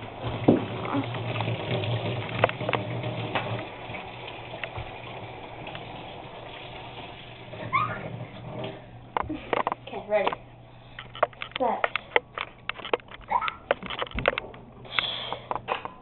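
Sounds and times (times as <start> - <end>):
water running from a tap: 0.0 - 10.2.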